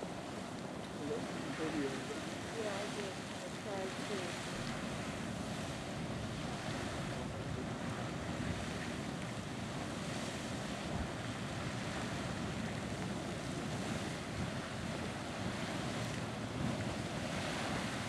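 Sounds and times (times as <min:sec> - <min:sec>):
geyser jetting steam and water: 0:00.0 - 0:18.0
wind noise on microphone: 0:00.0 - 0:18.0.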